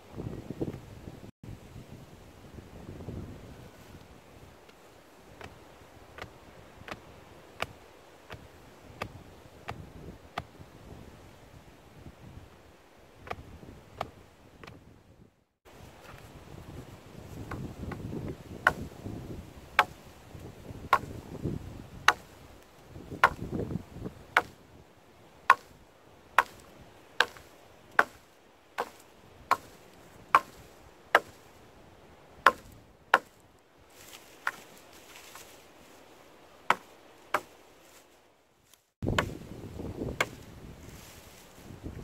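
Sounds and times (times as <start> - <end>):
hatchet chopping wood: 6.2 - 9.8, 17.5 - 18.9, 19.8 - 20.0, 20.9 - 21.1, 22.0 - 22.3, 23.2 - 23.5, 24.3 - 24.6, 25.5 - 25.8, 26.4 - 28.2, 28.8 - 31.4, 32.4 - 33.4, 36.7 - 37.6.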